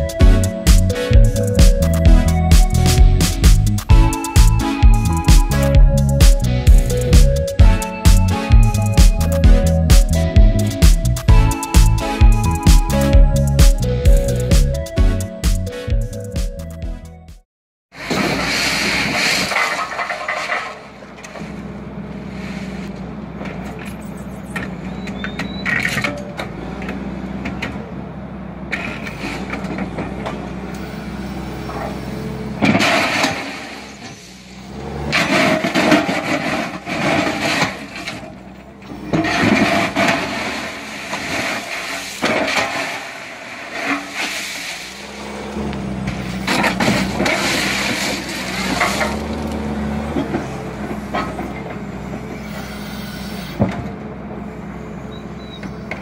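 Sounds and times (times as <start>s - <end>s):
gravel scraping and crunching: 17.9s - 27.6s, 28.7s - 53.6s
machine engine and hydraulics hum: 18.0s - 56.0s.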